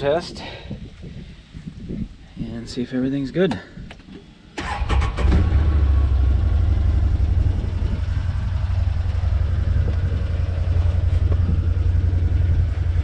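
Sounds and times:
engine idling: 4.6 - 13.0.

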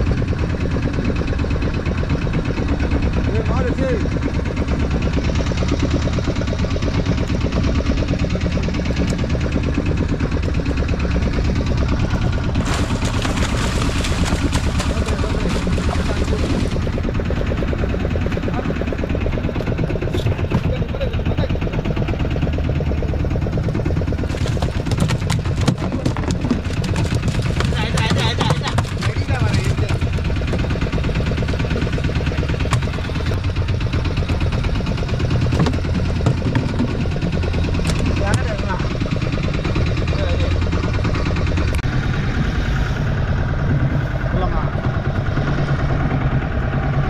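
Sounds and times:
boat engine idling: 0.0 - 47.0
fish splashing at surface: 12.5 - 16.9.

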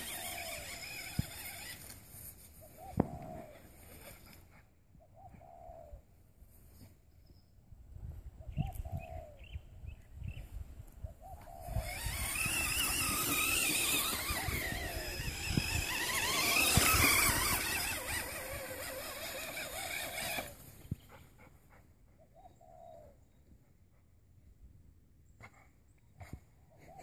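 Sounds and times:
electric motor whining: 0.0 - 2.0, 11.4 - 20.6.

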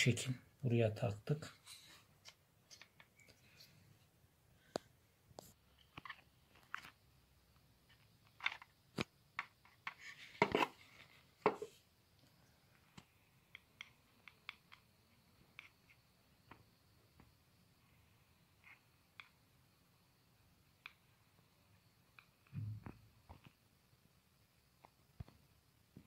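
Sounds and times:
plastic and metal parts clicking: 7.9 - 10.6.

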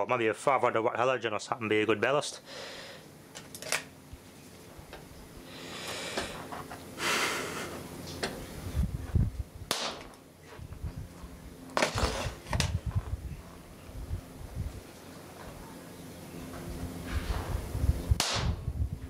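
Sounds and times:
sharp electrical snaps: 9.7 - 10.2, 18.2 - 18.7.

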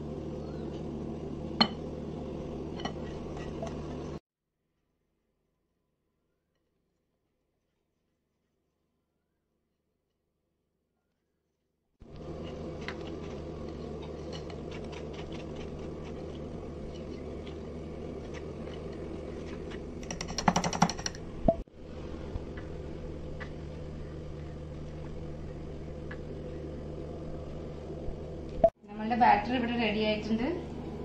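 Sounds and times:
steady background hum: 0.0 - 4.2, 12.0 - 31.0.

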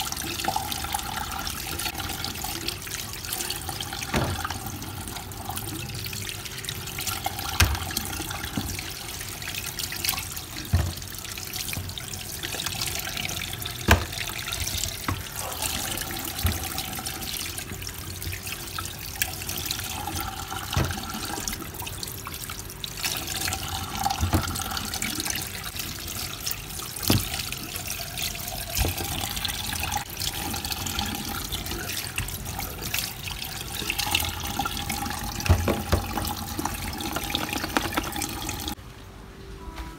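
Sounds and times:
tap running into metal sink: 4.0 - 4.8, 7.3 - 9.0, 10.1 - 13.0, 13.7 - 15.4, 20.1 - 21.6, 24.0 - 24.9, 35.3 - 38.8.

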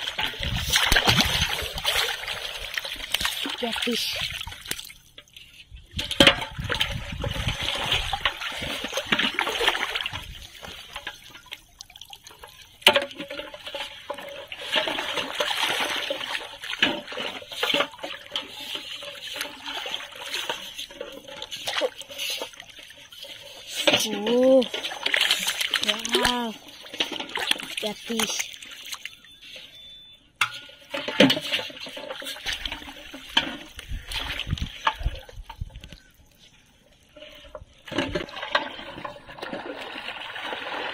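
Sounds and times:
sharp splashes: 0.0 - 5.0, 14.6 - 20.8, 21.6 - 29.4
water splashing and trickling: 0.0 - 40.9.

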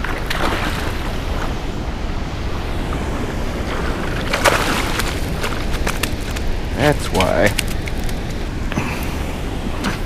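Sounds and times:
fish splashing: 4.0 - 8.2.

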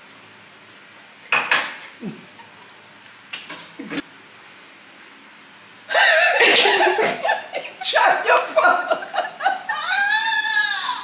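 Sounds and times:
woman laughing loudly: 2.0 - 2.8, 5.9 - 11.0.

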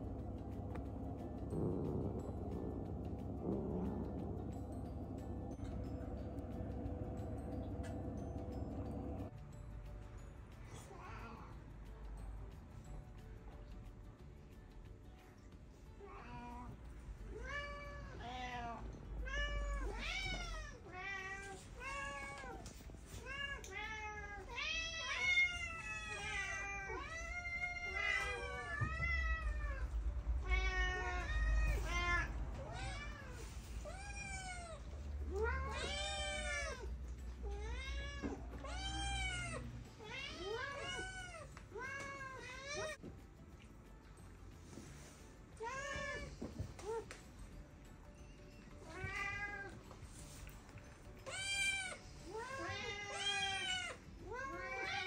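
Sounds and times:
cats meowing: 17.4 - 43.0, 45.6 - 47.2, 48.7 - 50.4, 51.1 - 55.0.

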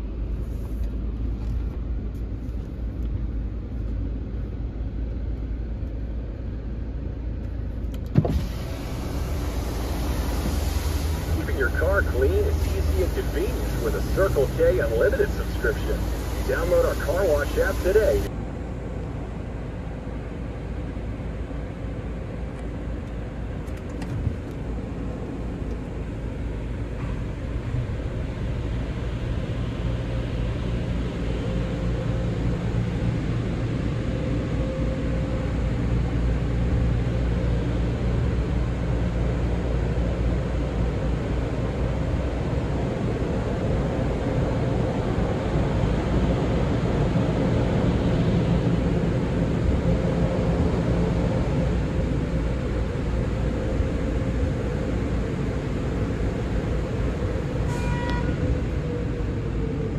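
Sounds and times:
car wash machinery humming: 7.8 - 22.4, 24.7 - 57.6.

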